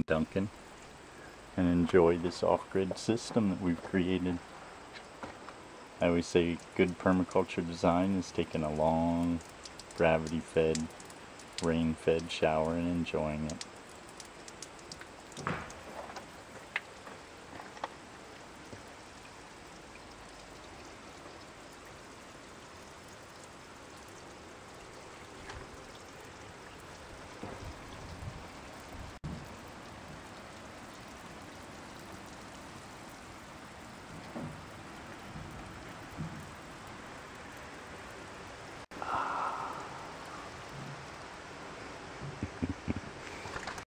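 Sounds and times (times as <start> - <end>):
shower water splattering on stone: 8.7 - 21.5
low bumps: 42.2 - 43.8.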